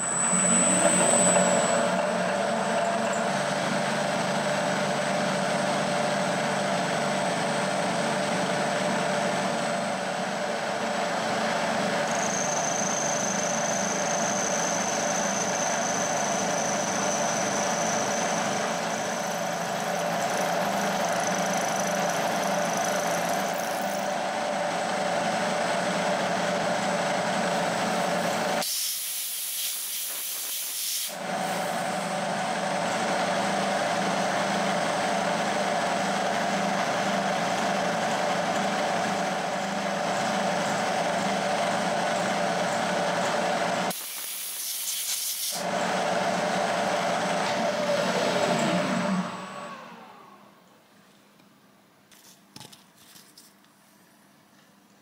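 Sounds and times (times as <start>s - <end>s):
milling machine cutting steel: 0.0s - 4.5s
compressed air blow gun hiss: 28.6s - 31.8s.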